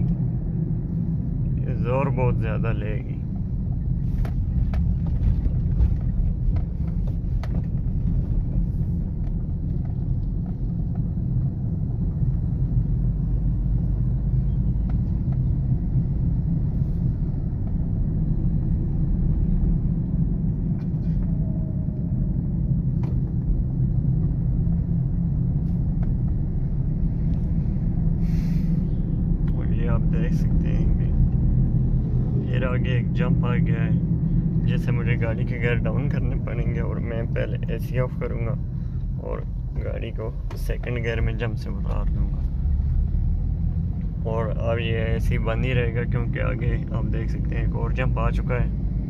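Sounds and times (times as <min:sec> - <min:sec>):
car engine low rumble: 0:00.0 - 0:49.0
road noise: 0:00.0 - 0:49.0.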